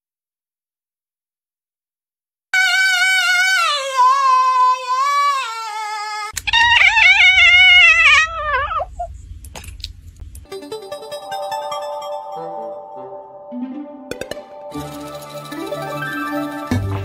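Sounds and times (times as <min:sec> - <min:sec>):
cat meowing: 0:02.6 - 0:09.1.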